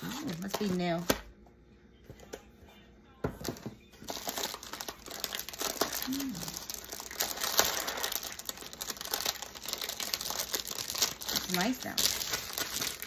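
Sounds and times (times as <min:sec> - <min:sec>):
plastic sleeve crinkling: 0:00.0 - 0:01.2, 0:04.0 - 0:13.0.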